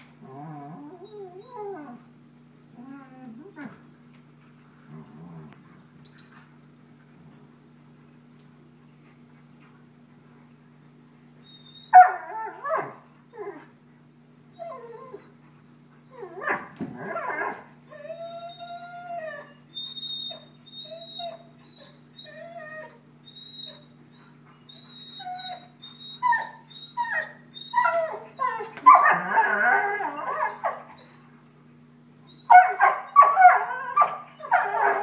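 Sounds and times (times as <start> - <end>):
dogs growling: 0.2 - 1.0, 4.8 - 5.9
dogs whining: 0.2 - 2.0, 14.5 - 15.3, 16.1 - 31.2, 32.3 - 35.0.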